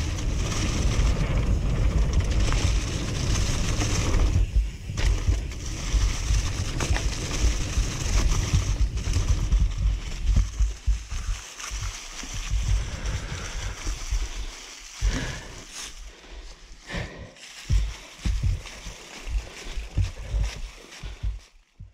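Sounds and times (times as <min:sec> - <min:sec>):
wind rumble on microphone: 0:00.0 - 0:15.7, 0:16.9 - 0:21.9
bike tyres rolling over leaves: 0:00.0 - 0:21.9.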